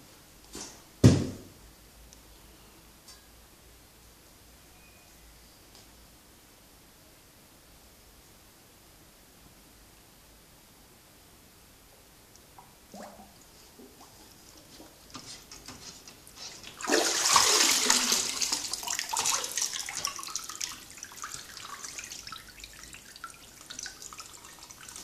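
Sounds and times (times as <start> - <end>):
water sloshing: 16.4 - 25.0.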